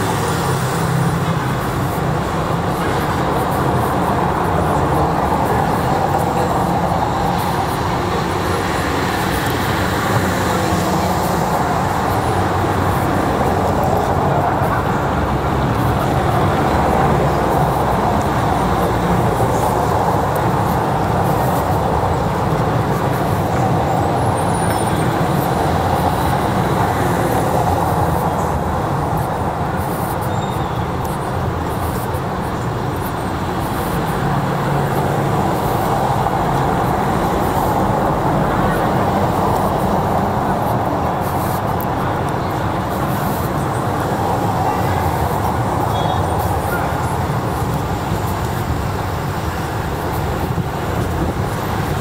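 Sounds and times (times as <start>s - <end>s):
road traffic going by: 0.0s - 52.0s.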